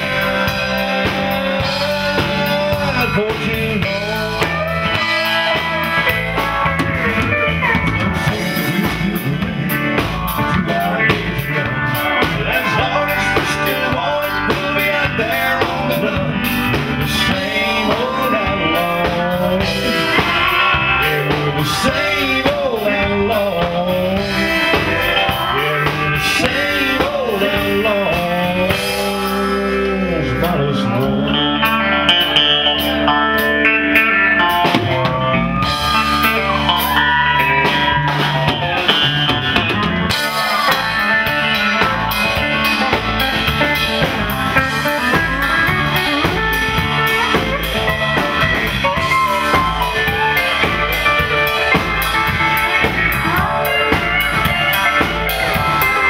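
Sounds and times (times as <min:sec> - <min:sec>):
drum kit: 0:00.0 - 0:56.0
electric guitar: 0:00.0 - 0:56.0
pedal steel guitar: 0:00.0 - 0:56.0.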